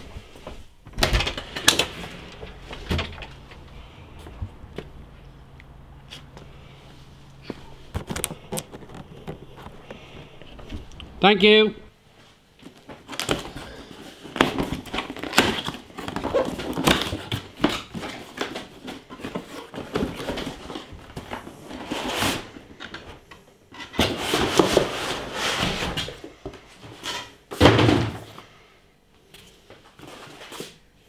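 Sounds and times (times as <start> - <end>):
cardboard flaps rustling: 12.6 - 22.6.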